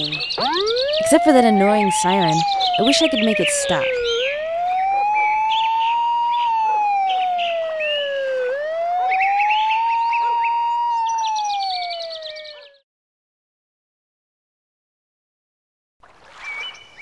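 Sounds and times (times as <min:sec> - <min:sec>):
birds chirping: 0:00.0 - 0:12.8
siren wailing: 0:00.0 - 0:12.8.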